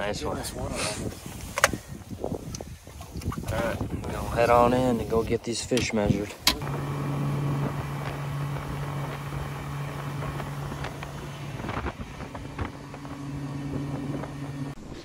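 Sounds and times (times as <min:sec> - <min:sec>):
wind: 0:00.0 - 0:15.0
outboard motor running: 0:06.5 - 0:14.8.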